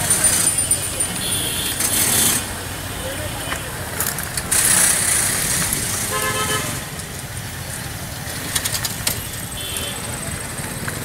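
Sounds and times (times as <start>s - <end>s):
city street traffic: 0.0s - 11.0s
vehicle horn honking: 6.1s - 6.8s.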